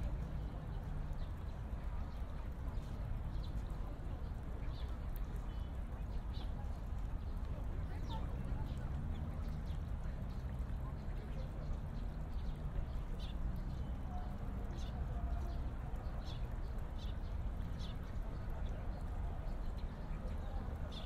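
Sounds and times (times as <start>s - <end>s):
small birds chirping: 0.1s - 21.0s.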